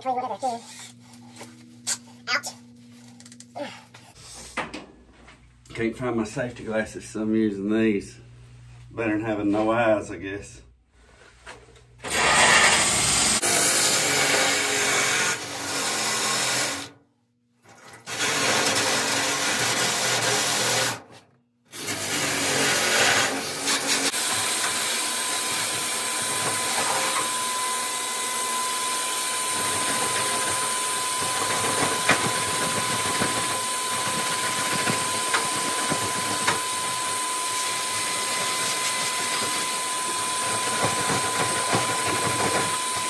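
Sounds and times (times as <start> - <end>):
shop vacuum running: 11.1 - 16.9, 18.1 - 21.0, 21.7 - 43.0
drill grinding metal: 12.0 - 16.9, 18.0 - 21.0, 21.7 - 43.0.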